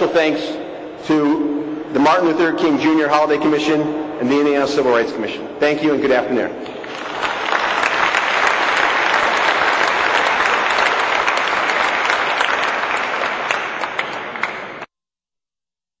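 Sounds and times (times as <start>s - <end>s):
audience applauding: 6.7s - 14.9s.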